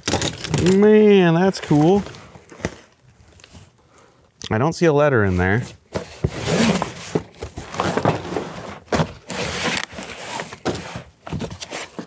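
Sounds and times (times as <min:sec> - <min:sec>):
cardboard box rustling and scraping: 0:05.6 - 0:12.0.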